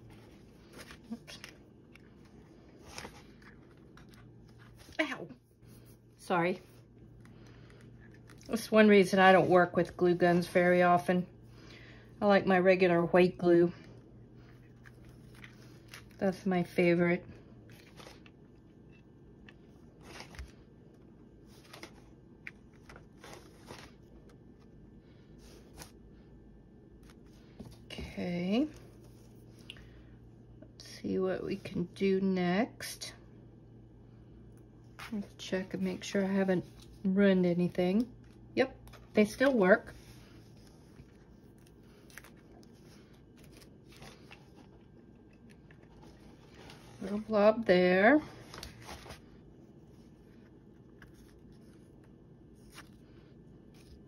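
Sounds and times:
soft rustling of cardboard: 0.0s - 11.1s, 17.4s - 26.0s, 34.8s - 54.0s.

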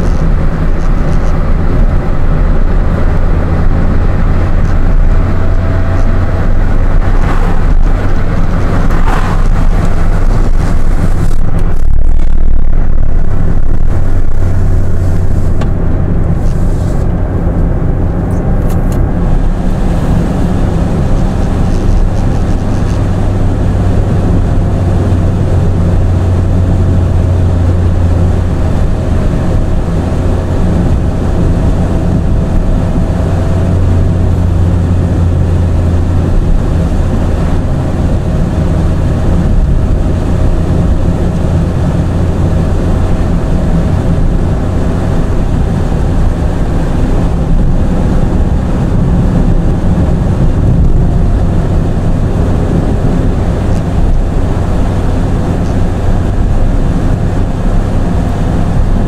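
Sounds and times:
car engine and tyres on road: 0.0s - 59.0s.

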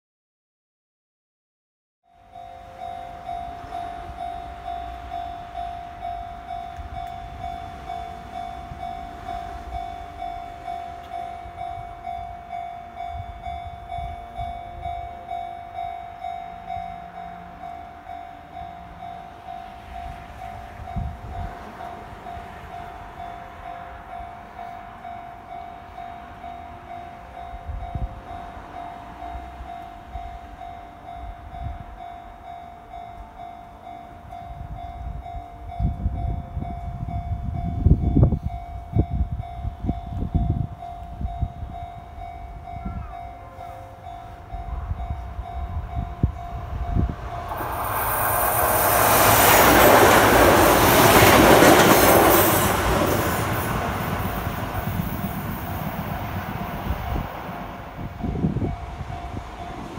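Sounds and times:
level crossing alarm bell ringing: 2.1s - 55.9s
electric train wheels clattering: 43.9s - 59.9s.

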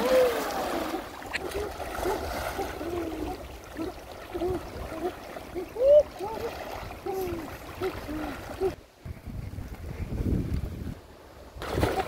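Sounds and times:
wading through shallow water: 0.0s - 8.9s.

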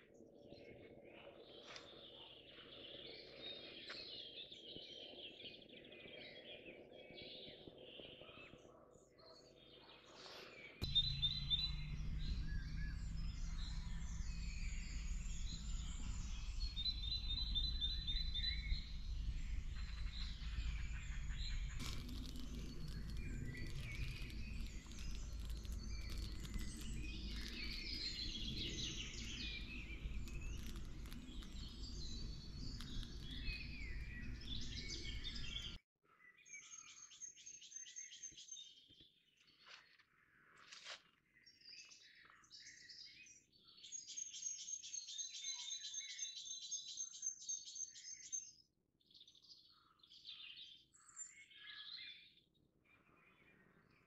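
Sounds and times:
birds chirping and singing: 10.6s - 35.8s
steady low rumble: 10.8s - 35.8s.

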